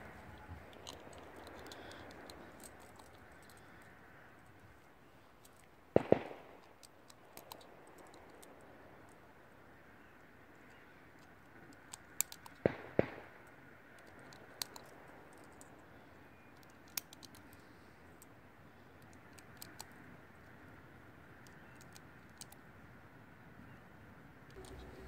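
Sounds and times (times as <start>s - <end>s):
distant gunshots: 5.9s - 8.5s, 12.6s - 13.5s.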